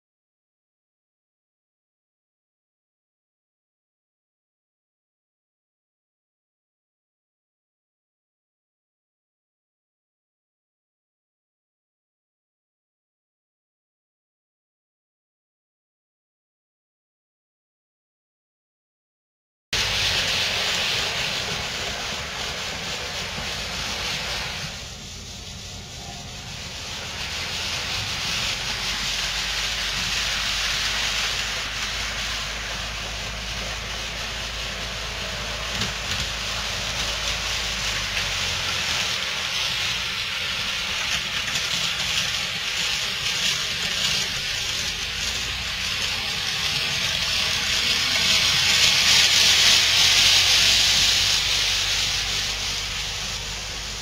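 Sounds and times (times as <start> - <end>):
model train wheels rolling on rails: 19.8 - 54.0.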